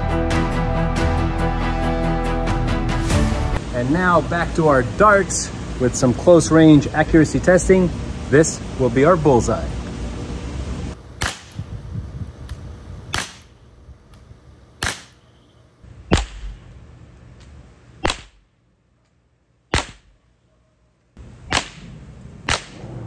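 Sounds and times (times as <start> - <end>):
air revolver firing pops: 11.2 - 11.7, 12.5 - 14.2, 14.8 - 15.2, 16.1 - 16.6, 18.0 - 18.4, 19.7 - 20.2, 21.5 - 22.9.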